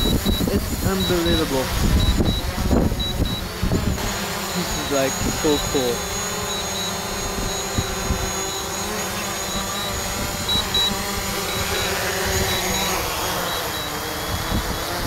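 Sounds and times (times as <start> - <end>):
wind buffeting microphone: 0.0 - 4.2, 5.0 - 6.1, 6.9 - 9.0, 9.6 - 12.8, 14.2 - 15.0
drone propellers whining: 0.0 - 15.0.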